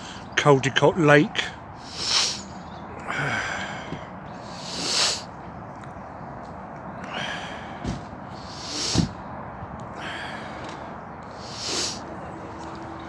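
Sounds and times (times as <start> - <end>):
person breathing heavily: 1.8 - 5.3, 6.9 - 9.2, 9.9 - 12.0.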